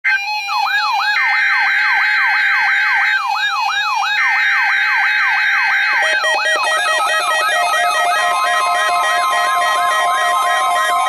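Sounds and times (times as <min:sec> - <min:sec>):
rising siren sweep: 0:05.4 - 0:11.0
steady high tone: 0:06.0 - 0:11.0.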